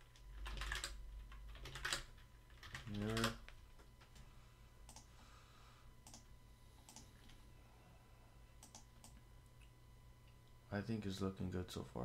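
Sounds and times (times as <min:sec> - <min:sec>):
low electrical hum: 0:00.0 - 0:12.0
computer mouse clicks: 0:04.9 - 0:05.1, 0:06.0 - 0:07.4, 0:08.6 - 0:09.2.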